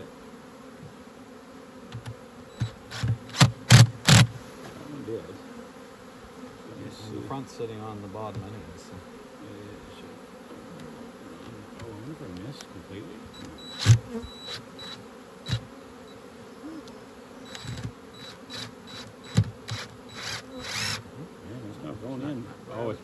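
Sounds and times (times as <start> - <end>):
bees buzzing: 0.0 - 23.0
cordless drill clicking: 18.6 - 21.0.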